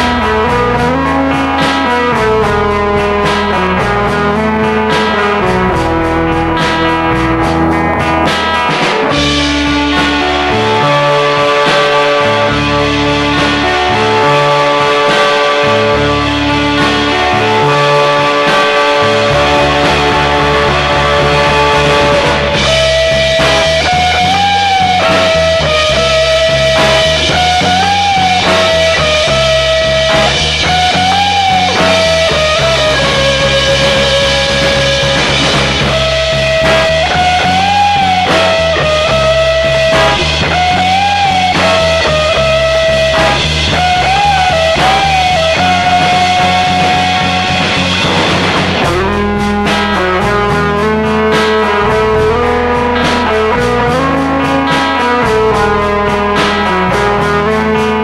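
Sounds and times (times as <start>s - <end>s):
instrumental rock song: 0.0s - 58.0s
strummed guitar: 0.0s - 58.0s.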